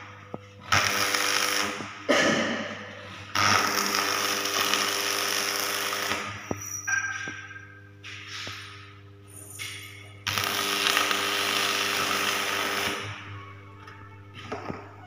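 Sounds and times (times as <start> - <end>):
welding arc crackling and hissing: 0.0 - 6.7, 8.1 - 13.2
electrical hum: 0.0 - 15.0.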